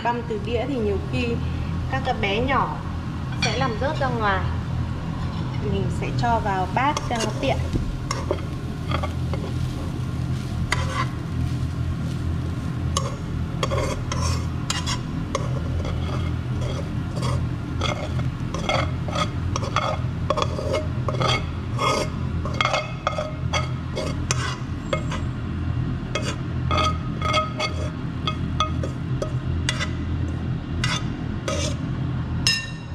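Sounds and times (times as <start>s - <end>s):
steady low hum: 0.0s - 32.9s
metal spoon scraping a wok: 6.8s - 11.2s, 12.9s - 25.4s, 26.1s - 30.1s, 30.8s - 31.9s.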